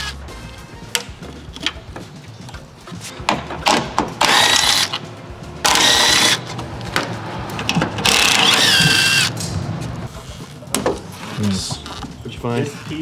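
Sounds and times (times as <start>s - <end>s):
cordless screwdriver whining: 5.7s - 6.4s, 8.0s - 9.3s.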